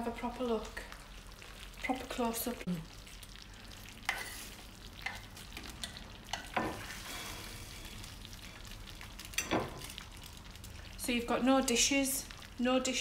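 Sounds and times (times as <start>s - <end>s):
faint sizzle of hot gravy: 0.0s - 13.0s
metal spoon scraping a pot: 4.1s - 5.2s.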